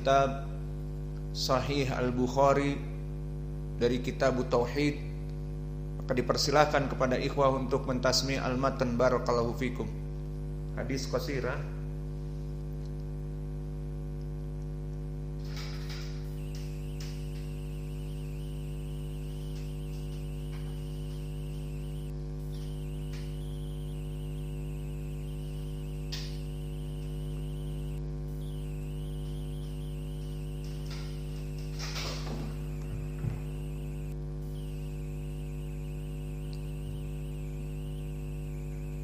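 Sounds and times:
electrical mains hum: 0:00.0 - 0:39.0
faint high whine: 0:15.1 - 0:39.0.

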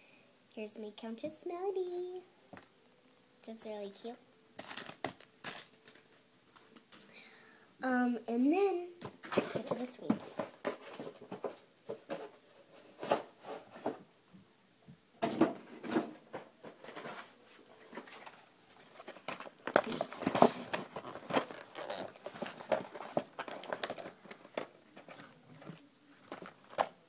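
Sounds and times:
packaging rustling and crinkling: 0:04.6 - 0:06.8, 0:16.6 - 0:27.0.

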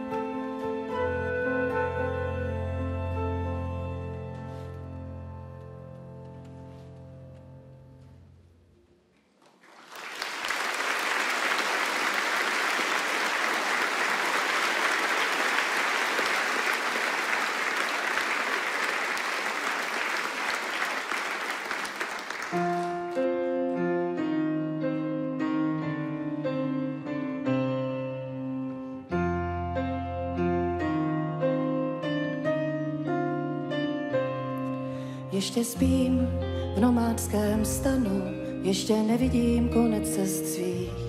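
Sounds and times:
piano and strings playing: 0:00.0 - 0:08.0, 0:11.2 - 0:41.0
audience applauding: 0:09.4 - 0:23.2.

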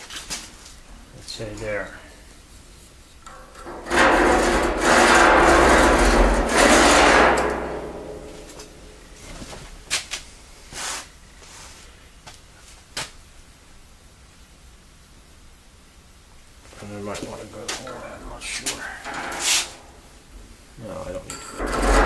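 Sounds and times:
chalk scraping on steel: 0:19.3 - 0:19.9.

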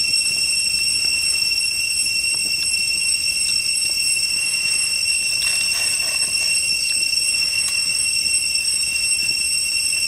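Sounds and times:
cicadas droning: 0:00.0 - 0:10.0.

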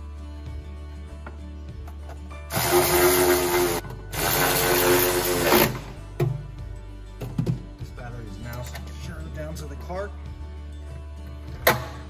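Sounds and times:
electric ratchet motor whine: 0:02.5 - 0:05.8.

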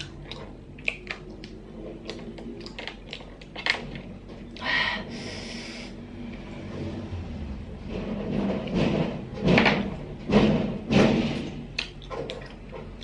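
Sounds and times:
hissing rush of air: 0:04.8 - 0:06.3.

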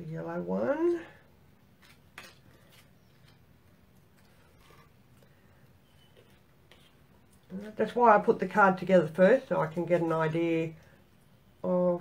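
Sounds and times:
paper card pieces tapping and rustling: 0:01.8 - 0:03.4.

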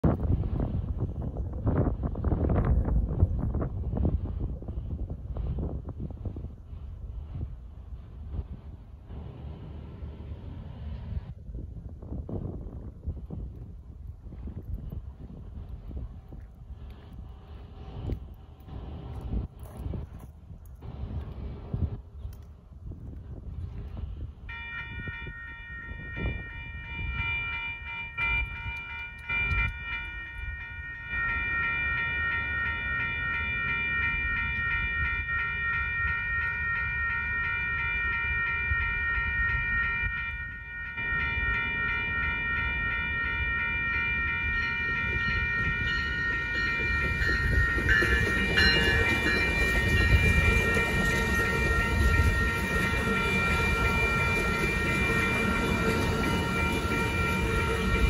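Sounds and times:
train rumbling: 0:00.0 - 0:58.0
crossing warning bell ringing: 0:24.5 - 0:58.0.

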